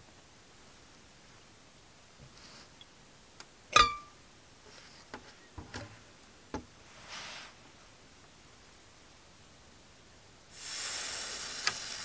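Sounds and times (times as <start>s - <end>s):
metal knock with ring: 3.8s - 4.1s.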